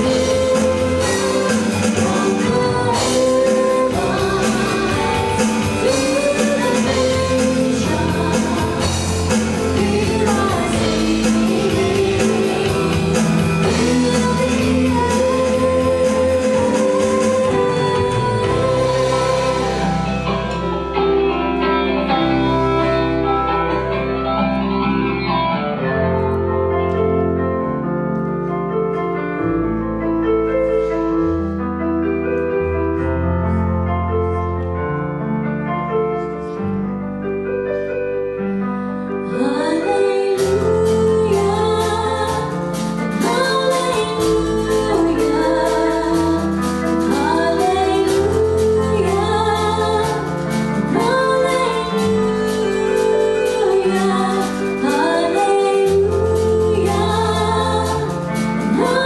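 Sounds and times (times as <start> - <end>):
drums and cymbals: 0.0 - 20.9, 40.4 - 59.0
woman singing: 0.0 - 26.9, 39.1 - 59.0
electric guitar chords: 0.0 - 35.6
bass guitar: 0.0 - 59.0
keyboard chords: 0.0 - 59.0.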